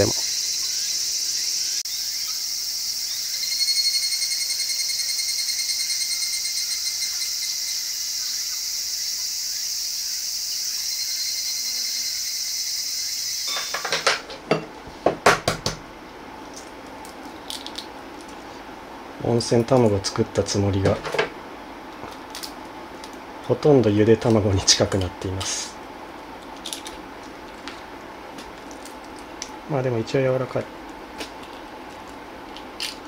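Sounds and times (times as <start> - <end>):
insect pulsed chirping: 0.0 - 14.0
insects chorus: 0.0 - 14.4.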